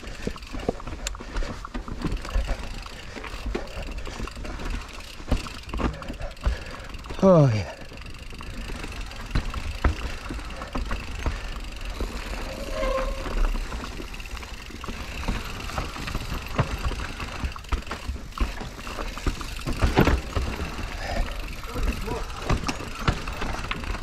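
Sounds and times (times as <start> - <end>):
bike rattling over bumps: 0.0 - 24.0
rushing scrape: 11.9 - 14.1
short squeak: 12.3 - 13.6.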